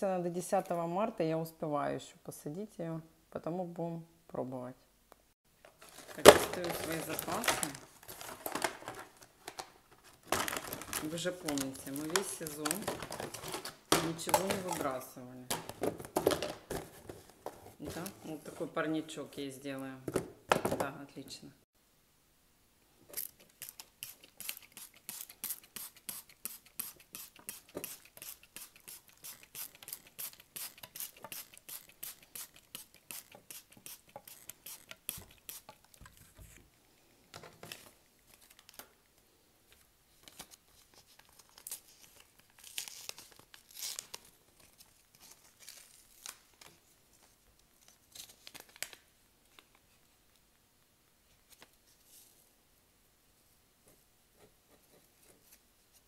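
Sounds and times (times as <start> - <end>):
rustling: 5.6 - 15.0
paper packet tearing: 23.2 - 36.0, 41.1 - 44.4.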